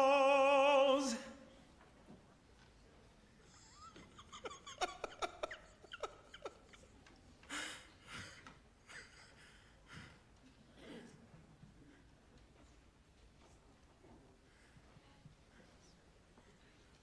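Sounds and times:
man chuckling: 0:03.5 - 0:10.0
heavy breaths: 0:09.2 - 0:11.1, 0:14.4 - 0:16.0.

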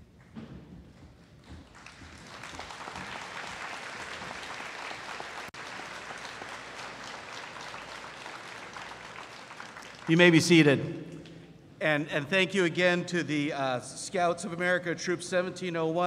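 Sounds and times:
audience applauding: 0:01.2 - 0:10.4.

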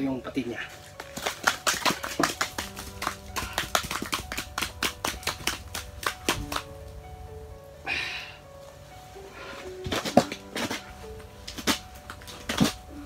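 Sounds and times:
fishing gear clicking and tapping: 0:00.7 - 0:06.7.

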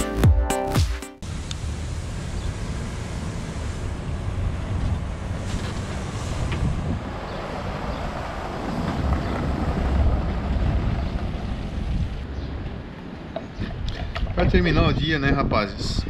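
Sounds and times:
wind buffeting microphone: 0:03.8 - 0:16.0.

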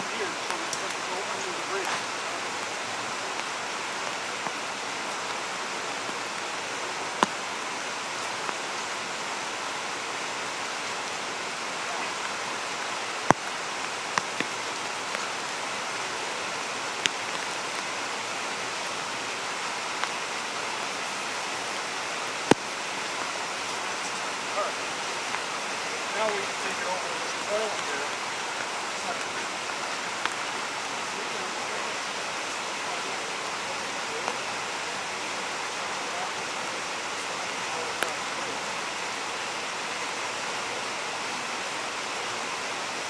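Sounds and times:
creek water rushing: 0:00.0 - 0:43.0.

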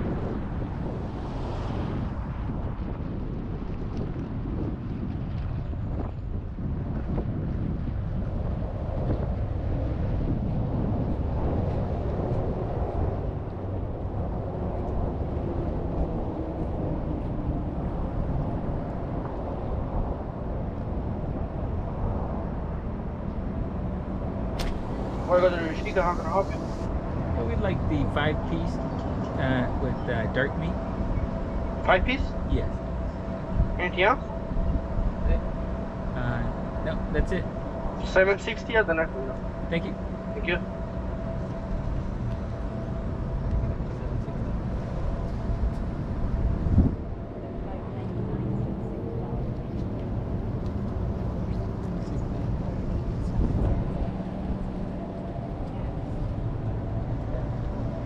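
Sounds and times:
car engine rumble: 0:00.0 - 0:58.0
faint steady hum: 0:00.0 - 0:58.0
sharp click: 0:24.6 - 0:24.8.

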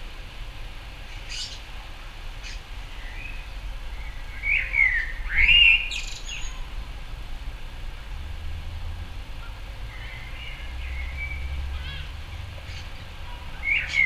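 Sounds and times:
blackbird singing: 0:02.4 - 0:06.7, 0:09.9 - 0:14.0.

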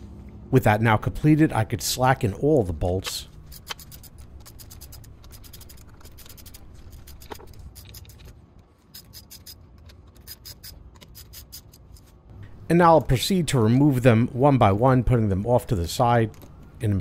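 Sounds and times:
ratchet clicking: 0:03.4 - 0:08.2, 0:08.9 - 0:09.6, 0:10.2 - 0:11.8.

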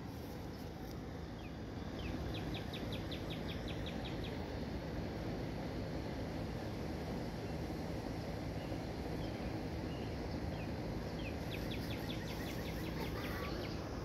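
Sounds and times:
outdoor background noise: 0:00.0 - 0:14.0.

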